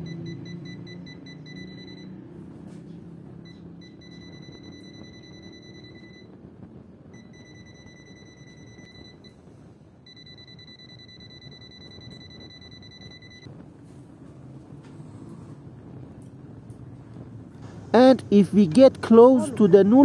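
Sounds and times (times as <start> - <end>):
voltage detector beeping: 0.0 - 2.2, 3.4 - 6.4, 7.1 - 9.4, 10.0 - 13.5.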